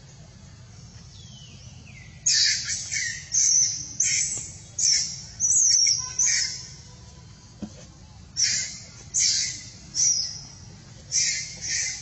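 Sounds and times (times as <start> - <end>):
animal giving shrill calls: 8.4 - 10.4, 11.1 - 12.0.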